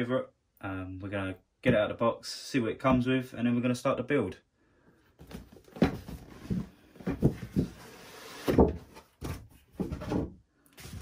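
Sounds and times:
cardboard box knocks and thumps: 0:05.2 - 0:11.0.

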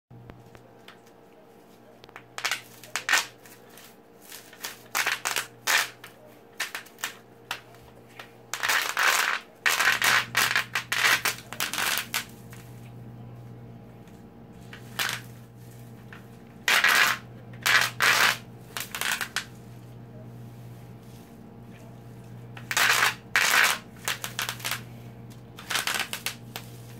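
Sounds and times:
bubble wrap popping: 0:02.1 - 0:12.7, 0:14.6 - 0:19.6, 0:22.5 - 0:26.9.

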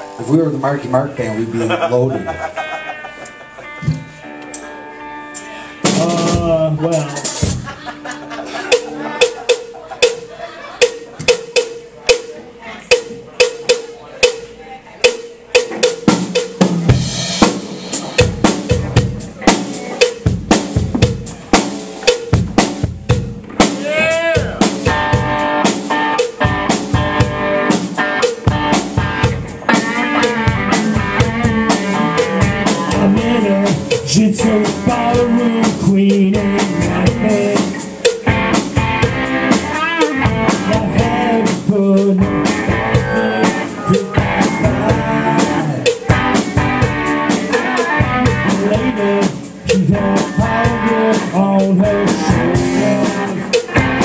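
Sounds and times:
live rock band: 0:00.0 - 0:54.0
hard drum hits: 0:15.6 - 0:33.5, 0:36.9 - 0:47.3.

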